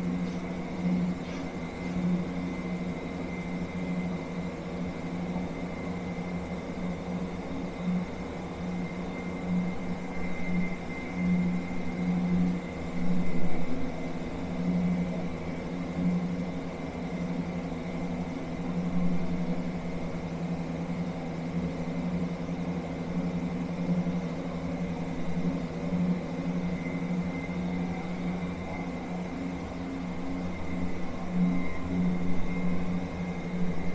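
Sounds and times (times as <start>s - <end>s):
faint high whine: 0.0s - 33.9s
low mechanical hum: 0.0s - 33.9s.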